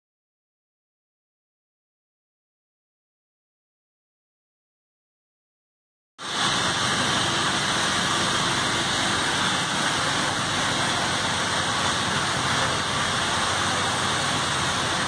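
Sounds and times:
industrial boiler rushing noise: 6.2s - 15.0s.

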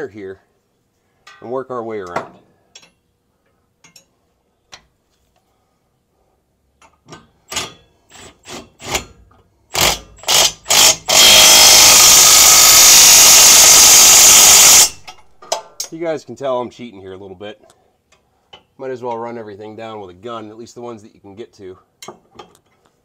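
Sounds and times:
impact wrench hammering: 7.1s - 15.7s.

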